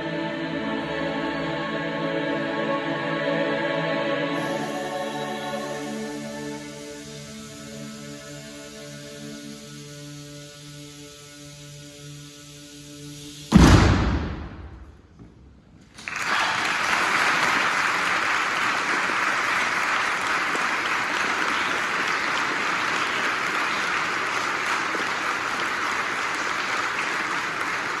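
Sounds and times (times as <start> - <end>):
audience applauding: 15.9 - 28.0.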